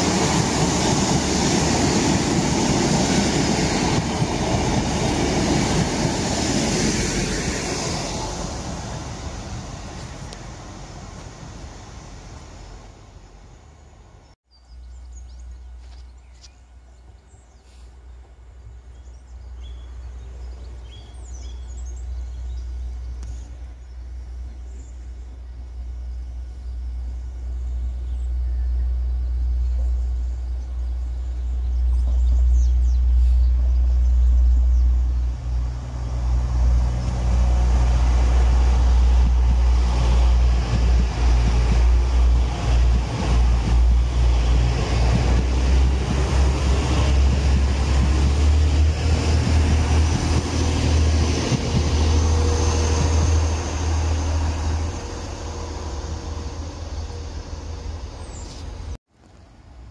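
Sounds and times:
diesel train passing: 0:00.0 - 0:59.0
deep low rumble: 0:21.2 - 0:59.0.

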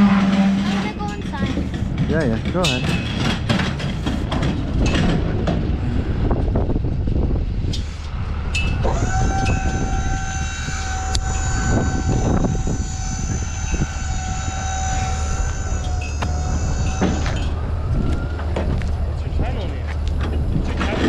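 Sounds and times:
metal clanks: 0:00.0 - 0:05.7
low steady rumble: 0:00.0 - 0:21.0
hydraulic lift whining: 0:07.7 - 0:19.2.

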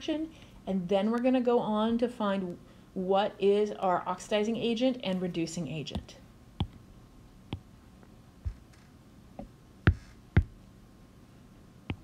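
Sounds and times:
taps on a touchscreen: 0:09.4 - 0:10.6.

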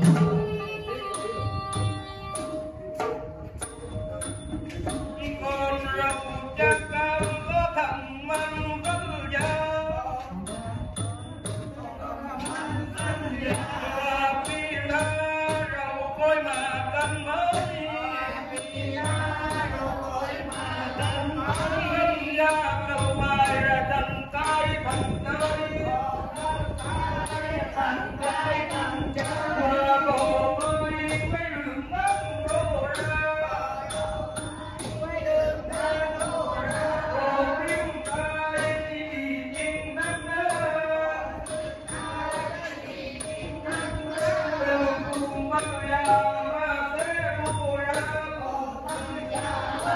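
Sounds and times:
traditional ensemble playing: 0:00.0 - 0:10.9
man chanting verse: 0:04.9 - 0:49.9.

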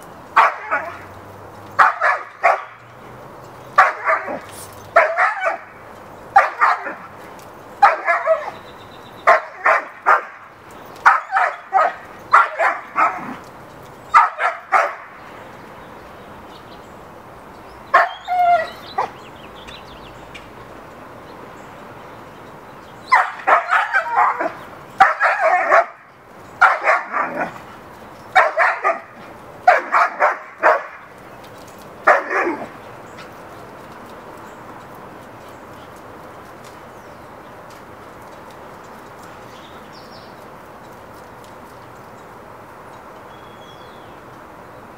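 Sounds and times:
dog barking: 0:00.4 - 0:01.0, 0:01.8 - 0:02.8, 0:03.8 - 0:05.8, 0:06.4 - 0:07.0, 0:07.8 - 0:08.6, 0:09.3 - 0:10.4, 0:11.0 - 0:13.4, 0:14.2 - 0:15.1, 0:23.1 - 0:26.0, 0:26.6 - 0:27.5, 0:28.4 - 0:31.0, 0:32.1 - 0:32.7.

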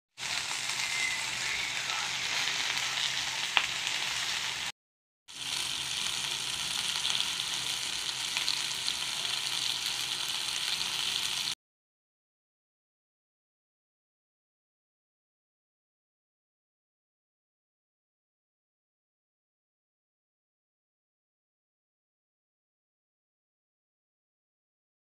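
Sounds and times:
fish sizzling in oil: 0:00.1 - 0:04.7, 0:05.3 - 0:11.6.

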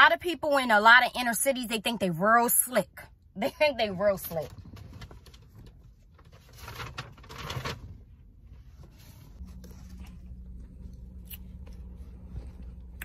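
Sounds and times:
faint low hum: 0:09.1 - 0:13.0.

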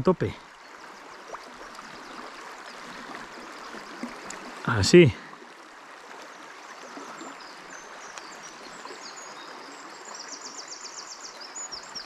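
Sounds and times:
river running over stones: 0:00.0 - 0:12.0
songbird chirping: 0:06.9 - 0:12.0.

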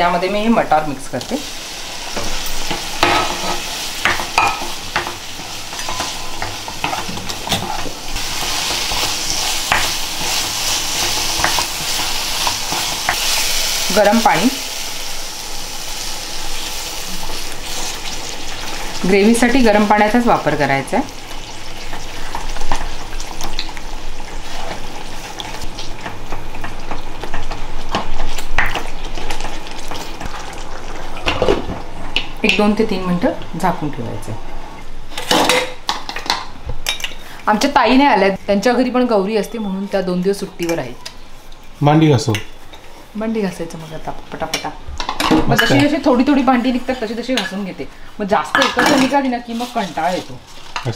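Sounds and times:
food sizzling: 0:00.0 - 0:50.9
spatula scraping and tapping pan: 0:02.2 - 0:13.3.

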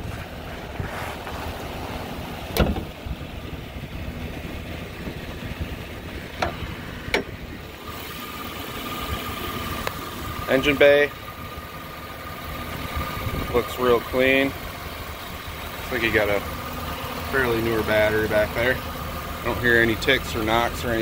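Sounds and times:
pickup engine idling: 0:00.0 - 0:21.0
hood latch clicks: 0:02.5 - 0:02.9, 0:06.3 - 0:07.4.

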